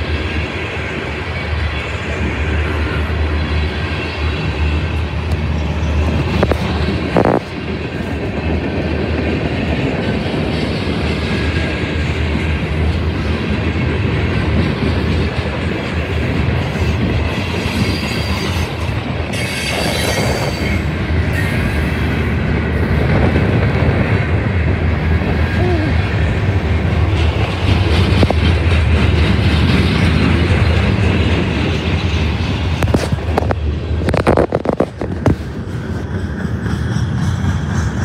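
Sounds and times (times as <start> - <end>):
train wheels rumbling on rails: 0.0 - 38.0
high-pitched wheel squeal: 17.6 - 22.1.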